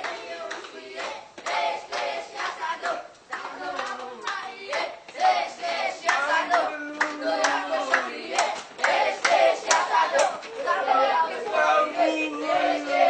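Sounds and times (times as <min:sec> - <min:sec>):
hands clapping: 0:00.0 - 0:05.4, 0:06.0 - 0:10.8
boys singing together: 0:00.0 - 0:13.0.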